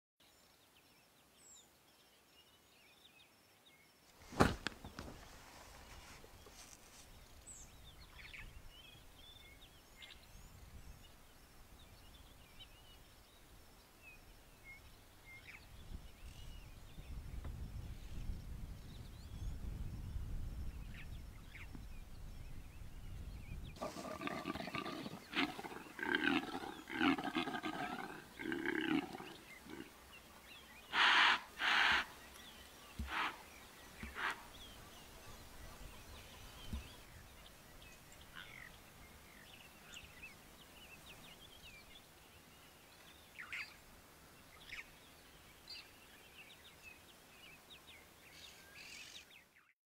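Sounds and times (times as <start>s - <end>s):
antelope deep grunts: 23.8s - 29.9s
antelope snorts: 23.8s - 29.9s, 30.9s - 32.1s, 33.0s - 33.4s, 34.1s - 34.4s.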